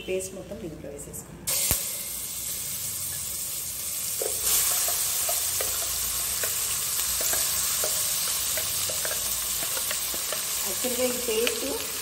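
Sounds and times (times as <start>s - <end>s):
oil sizzling in pot: 1.5s - 12.0s.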